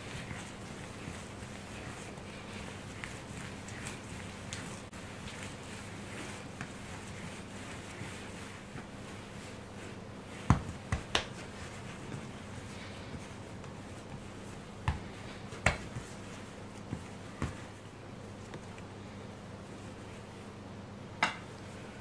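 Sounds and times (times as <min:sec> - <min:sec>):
dough slapped on wooden table: 0:10.4 - 0:11.4, 0:14.8 - 0:15.9.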